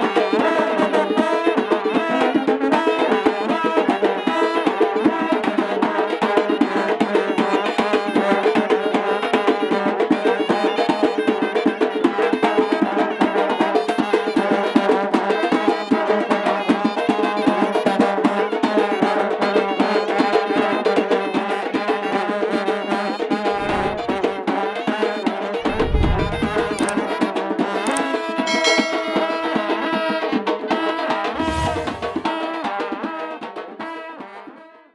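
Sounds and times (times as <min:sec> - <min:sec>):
shawm playing melody: 0:23.4 - 0:24.6, 0:25.5 - 0:30.3.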